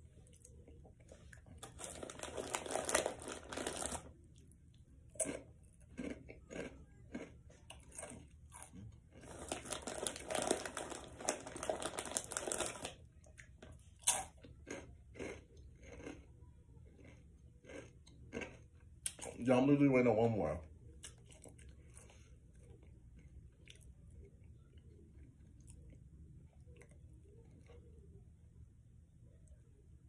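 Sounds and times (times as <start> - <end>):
crunching crackles: 1.2 - 4.1, 5.1 - 16.3
foil snack bag rustling: 1.6 - 4.1, 9.2 - 13.0.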